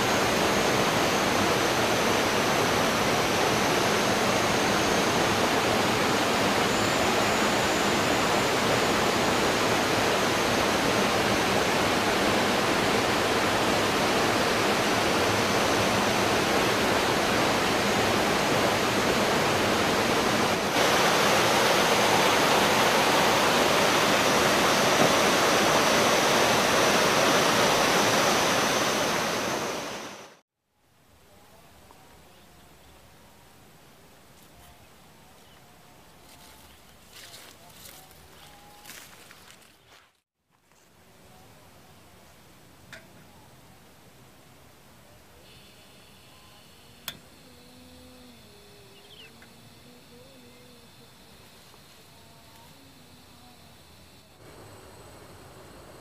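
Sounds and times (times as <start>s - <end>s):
waterfall rushing: 0.0s - 30.4s.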